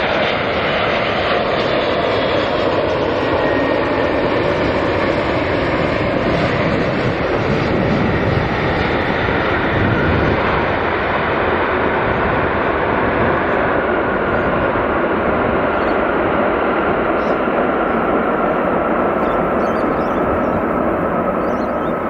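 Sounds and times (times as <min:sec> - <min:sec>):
jet engines running: 0:00.0 - 0:22.0.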